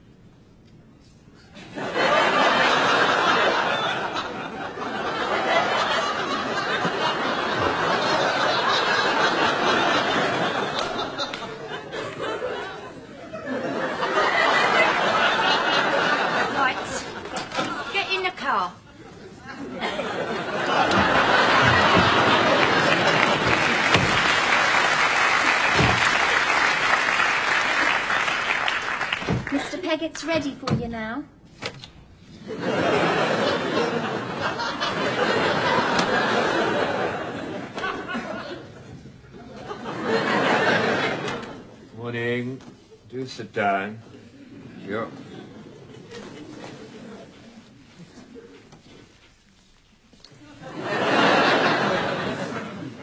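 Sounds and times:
studio audience laughing: 1.6 - 29.9, 32.3 - 41.8, 44.2 - 48.9, 50.4 - 53.0
audience applauding: 20.2 - 29.8.

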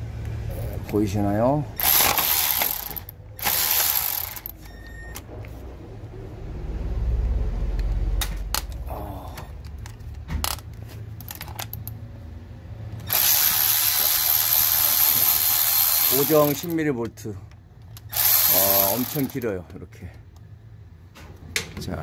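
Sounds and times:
cordless electric ratchet running: 1.8 - 4.5, 13.0 - 16.8, 18.0 - 19.6
tool handling clicks and knocks: 9.4 - 12.0, 21.1 - 21.9.

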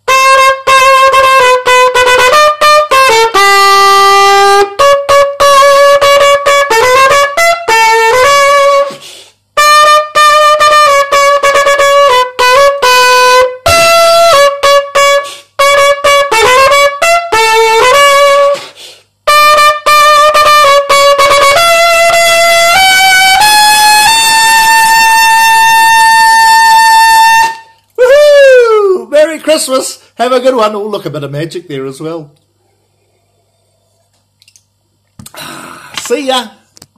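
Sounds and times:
trumpet playing a tune: 0.0 - 9.0, 9.6 - 18.6, 19.2 - 27.8.

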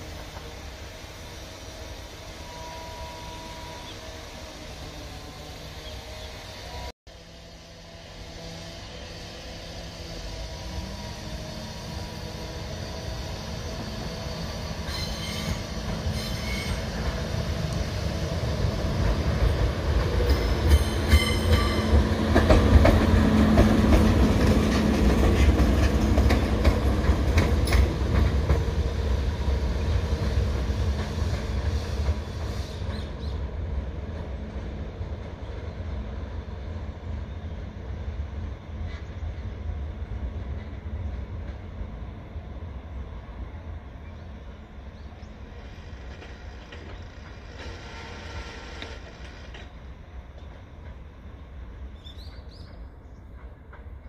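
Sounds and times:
high wheel squeals: 10.1 - 17.2
wheels clicking over rail joints: 45.5 - 51.2.

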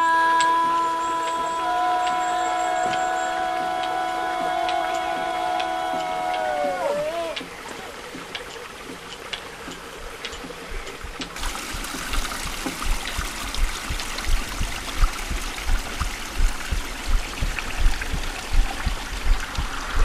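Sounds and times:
stream trickling over stones: 0.0 - 20.0
low dull thumps: 11.0 - 20.0.

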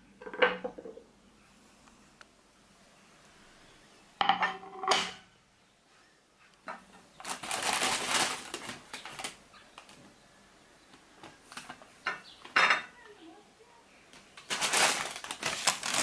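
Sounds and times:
ceramic plates on marble: 0.2 - 1.1, 4.2 - 5.3, 11.6 - 13.0
rustling: 5.8 - 10.2, 14.1 - 16.0.

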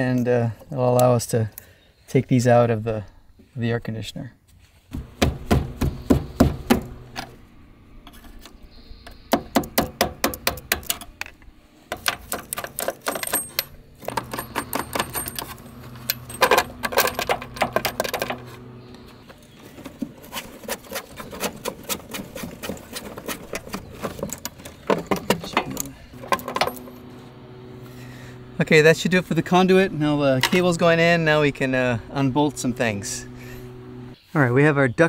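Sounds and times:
low hum: 5.0 - 20.2, 22.7 - 34.3
metallic clicking and rattling: 10.2 - 18.5.

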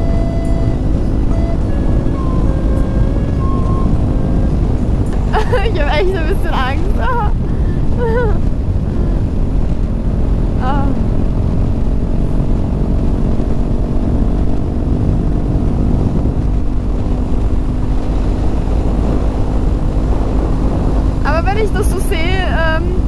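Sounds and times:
motorcycle engine cruising: 0.0 - 23.0
wind rushing over microphone: 0.0 - 23.0.

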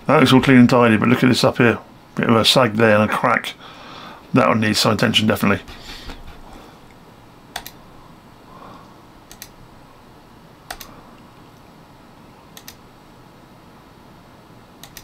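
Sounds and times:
computer mouse clicks: 7.5 - 7.8, 9.3 - 9.6, 10.7 - 11.0, 12.5 - 12.8, 14.8 - 15.0.

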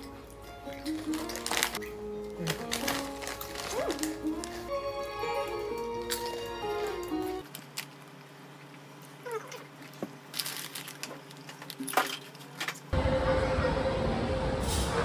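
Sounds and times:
loud rumbling ambience with hum: 0.0 - 15.0
chip bag crinkling: 0.6 - 12.6.

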